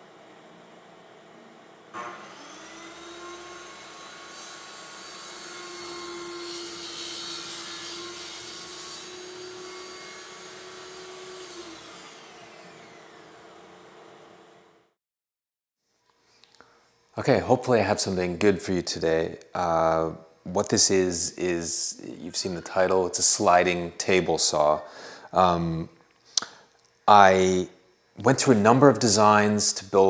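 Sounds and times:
saw cutting through board: 2.0 - 14.6
circular saw whine: 2.0 - 14.9.

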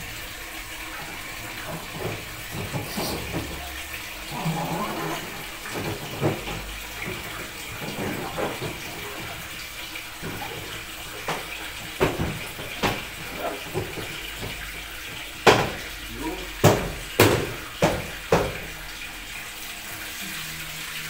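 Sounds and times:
water sloshing in washing machine: 0.0 - 21.0
sharp knocks: 10.2 - 15.9, 16.6 - 18.7.

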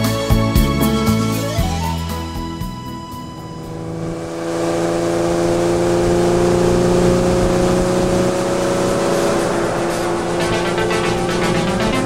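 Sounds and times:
motorboat engine running: 0.6 - 12.0
water rushing from hull: 3.1 - 12.0.

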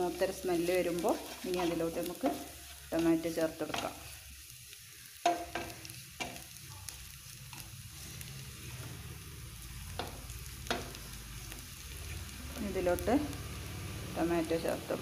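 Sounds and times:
frying sizzle: 0.0 - 15.0
wooden spatula scraping steel pan: 0.9 - 4.1.

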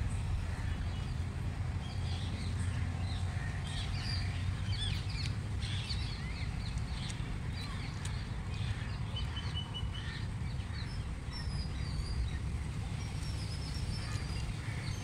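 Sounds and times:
birds chirping: 0.0 - 15.0
steady low rumble: 0.0 - 15.0.

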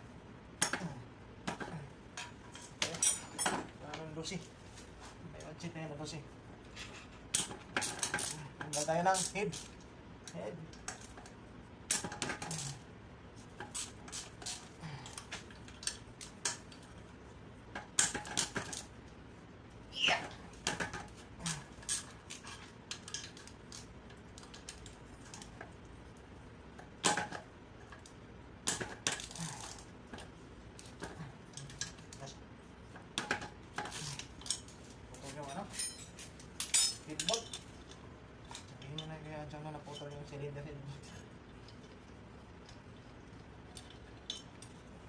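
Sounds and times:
metal tools clinking on engine: 2.5 - 3.8, 35.4 - 38.0.

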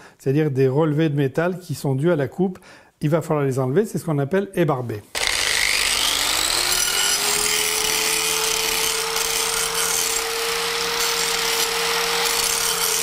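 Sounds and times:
angle grinder grinding steel: 5.2 - 13.0.

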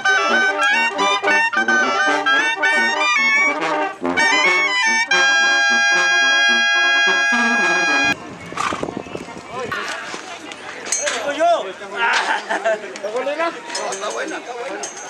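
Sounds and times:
brass band playing: 0.0 - 8.2.

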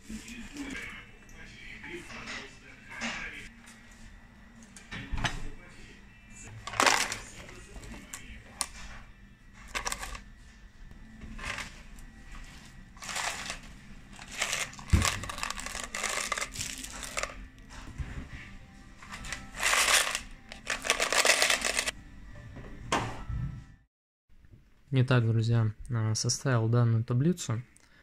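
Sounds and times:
coins clinking in cloth pouch: 19.2 - 21.9.

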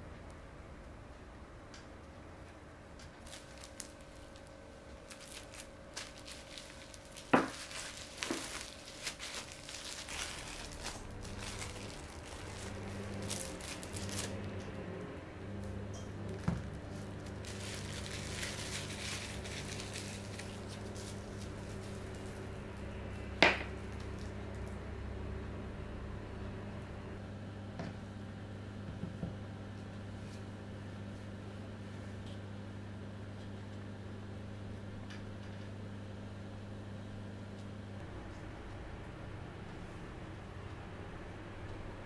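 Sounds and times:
low steady hum: 0.0 - 42.0
cling film crinkling: 3.0 - 14.8, 15.6 - 24.8.

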